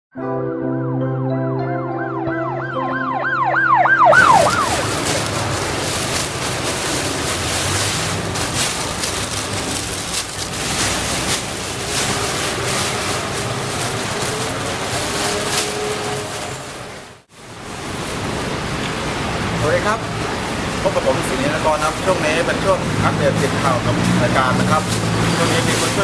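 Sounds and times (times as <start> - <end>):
electronic news intro sting: 0.2 - 4.9
rushing noise with crackles: 3.9 - 26.0.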